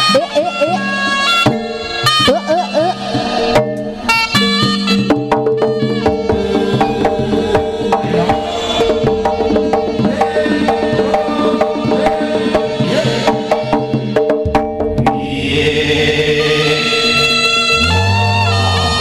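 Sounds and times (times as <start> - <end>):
held tone: 0.8 - 14.0
gongs and metallophones: 0.9 - 15.5.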